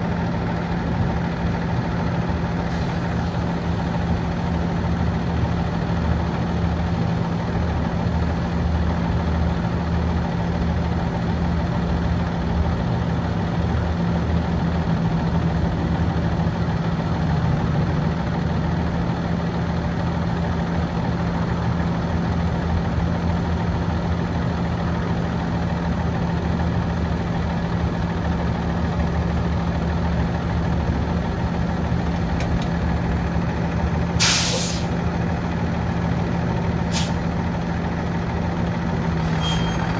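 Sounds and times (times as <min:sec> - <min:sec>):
diesel truck engine idling: 0:00.0 - 0:39.9
air hiss: 0:34.2 - 0:34.9.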